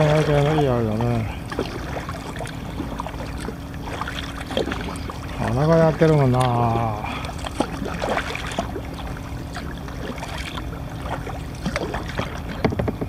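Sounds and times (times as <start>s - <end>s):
water lapping against kayak: 0.0s - 13.0s
small knocks: 12.5s - 13.0s.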